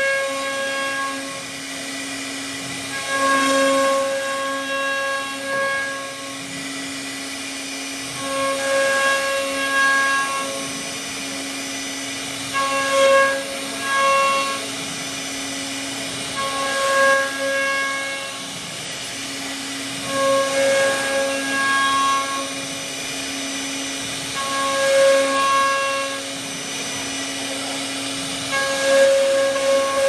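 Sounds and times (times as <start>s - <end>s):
bit milling wood: 0.0s - 30.0s
router spindle whining: 0.0s - 30.0s.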